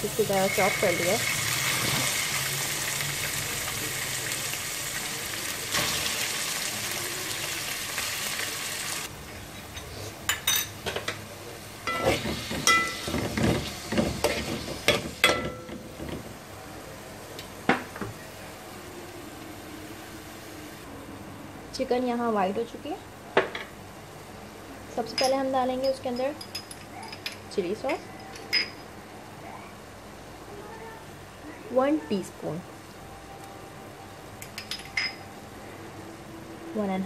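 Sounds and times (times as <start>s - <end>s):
chicken sizzling in hot oil: 0.0s - 9.1s.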